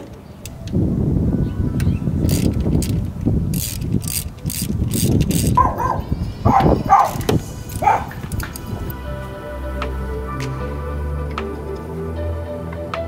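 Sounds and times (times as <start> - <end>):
socket ratchet clicking: 2.2 - 5.6.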